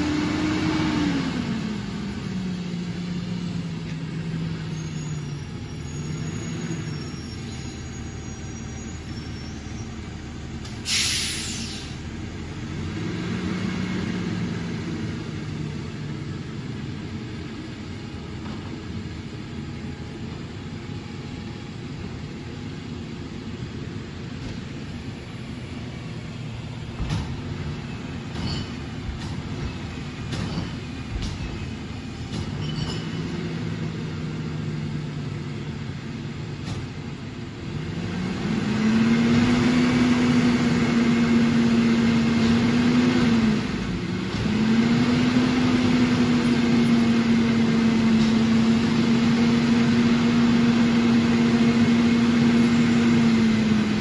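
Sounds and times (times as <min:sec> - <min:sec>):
garbage truck engine: 0:00.0 - 0:54.0
air hiss: 0:10.8 - 0:12.0.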